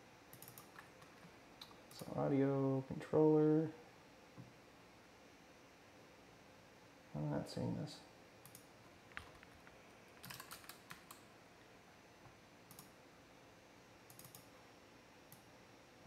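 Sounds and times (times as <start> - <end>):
faint keyboard typing: 0.3 - 2.1, 8.4 - 11.3, 12.6 - 13.0, 14.0 - 14.5.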